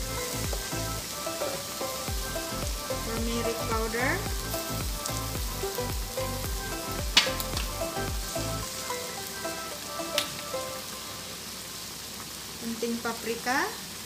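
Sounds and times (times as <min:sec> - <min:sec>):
background music with steady beat: 0:00.0 - 0:11.2
food sizzling in a wok: 0:00.0 - 0:14.0.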